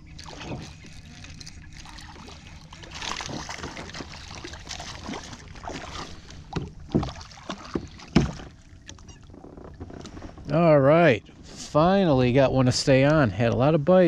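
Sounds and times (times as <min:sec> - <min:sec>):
water splashing: 0:00.0 - 0:10.2
knocks and thumps: 0:06.5 - 0:08.5.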